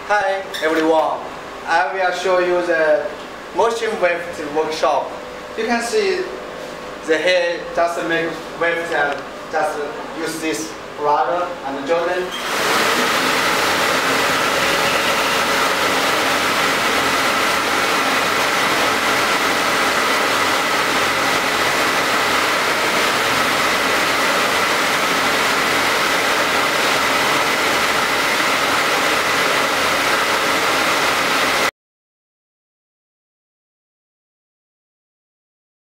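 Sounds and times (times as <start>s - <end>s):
sewing machine motors humming: 12.3s - 31.7s.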